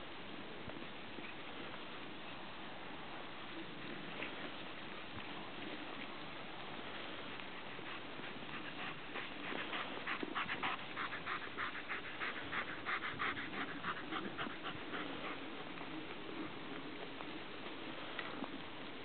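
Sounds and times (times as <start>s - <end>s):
dog panting: 7.3s - 15.8s.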